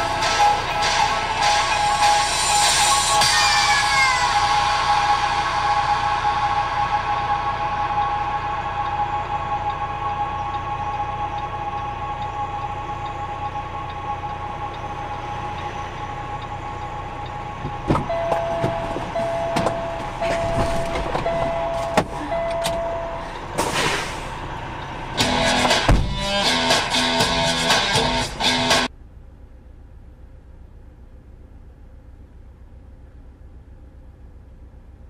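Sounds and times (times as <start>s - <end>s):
truck engine idling: 0.0s - 35.0s
knocks and clicks: 17.6s - 22.9s, 25.2s - 28.0s
short beeps: 18.0s - 23.4s
guitar music: 25.2s - 28.9s.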